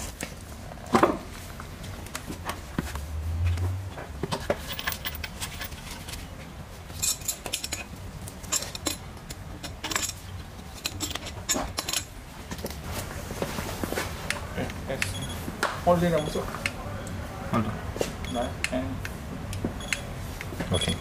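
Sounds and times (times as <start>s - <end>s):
metallic clinks and knocks: 3.9s - 6.2s, 6.9s - 12.1s, 20.6s - 21.0s.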